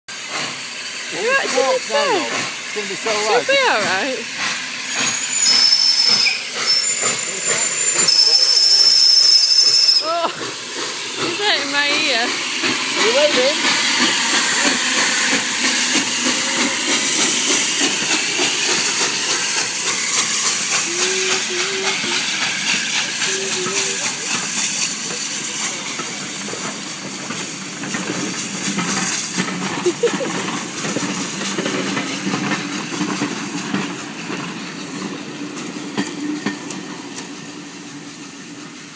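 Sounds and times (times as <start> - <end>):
steam locomotive hissing steam: 0.1 - 38.9
train wheels clattering on track: 0.1 - 38.9.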